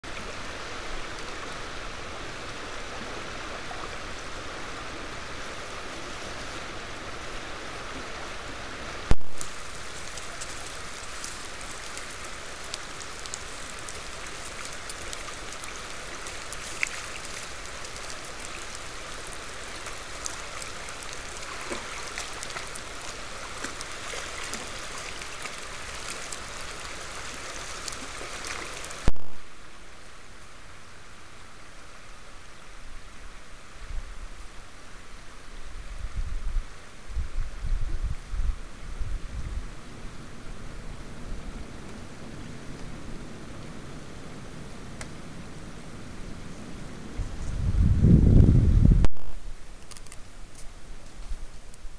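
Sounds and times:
stream water rushing: 0:00.0 - 0:36.0
faint ticks: 0:49.8 - 0:51.9.

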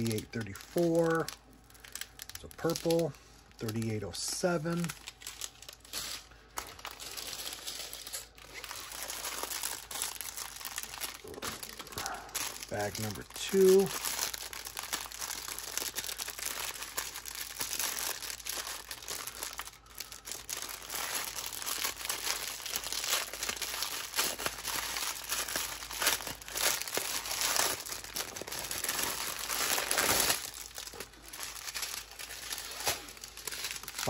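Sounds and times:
plastic bags crinkling: 0:00.0 - 0:34.0.

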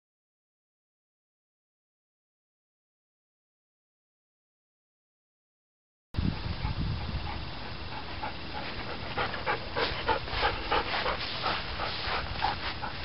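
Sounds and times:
dog panting fast: 0:06.2 - 0:13.0.

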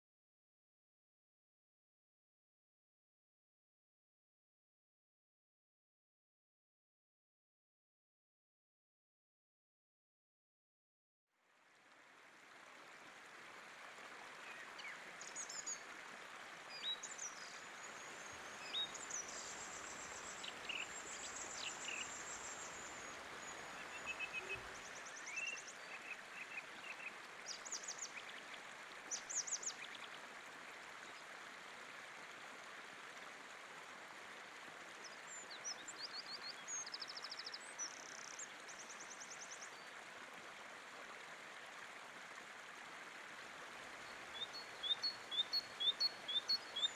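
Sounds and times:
river rushing over stones: 0:12.0 - 0:34.9
small birds chirping: 0:16.7 - 0:28.4, 0:44.1 - 0:46.9.

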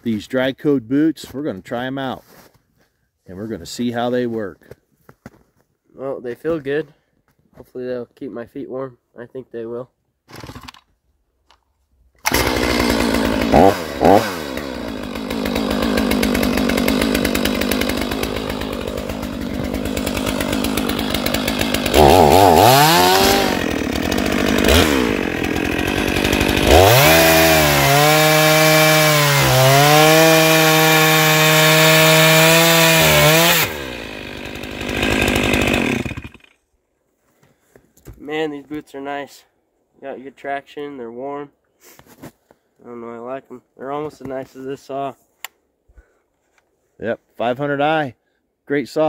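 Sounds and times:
chainsaw cutting a log: 0:10.3 - 0:10.8, 0:12.2 - 0:36.6.

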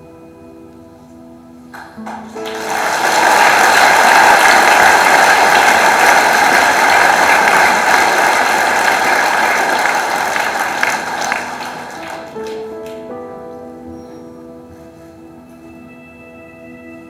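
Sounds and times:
large audience applauding: 0:01.8 - 0:13.0.

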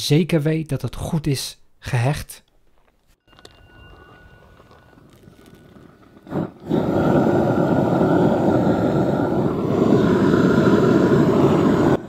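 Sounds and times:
gas torch flame rushing: 0:05.0 - 0:12.0.

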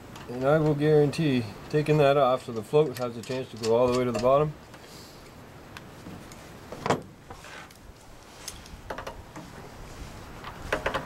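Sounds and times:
light clicks of metal parts: 0:00.0 - 0:00.9, 0:01.6 - 0:06.5, 0:07.6 - 0:09.5.

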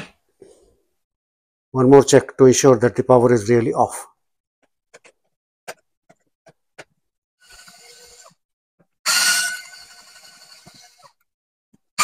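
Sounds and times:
cordless screwdriver motor whirring: 0:07.4 - 0:08.4, 0:09.1 - 0:11.2.

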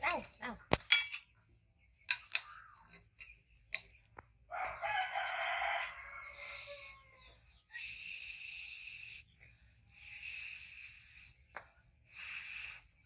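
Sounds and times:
rooster crowing: 0:04.5 - 0:07.4.

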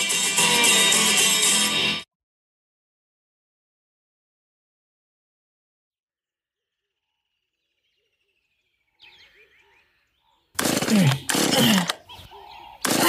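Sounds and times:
faint bird chirps: 0:06.4 - 0:10.6.

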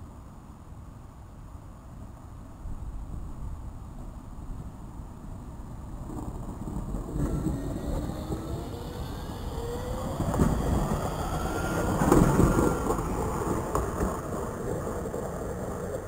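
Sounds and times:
wheels rumbling on rails: 0:04.0 - 0:16.0
tram motors whining: 0:06.5 - 0:16.0.

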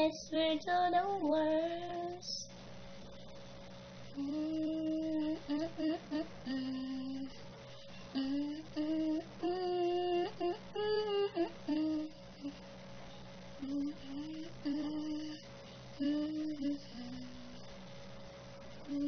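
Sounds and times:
person humming: 0:04.1 - 0:07.4, 0:08.1 - 0:12.6, 0:13.6 - 0:17.7, 0:18.8 - 0:19.0.

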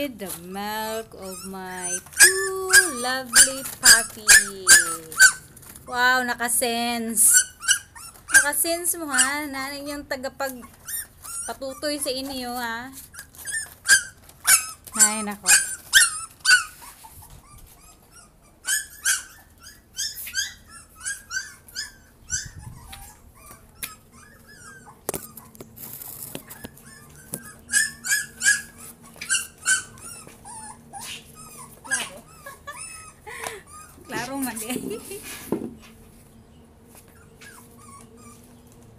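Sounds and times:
puppies whimpering: 0:00.9 - 0:05.6, 0:07.2 - 0:35.4, 0:36.9 - 0:38.8.

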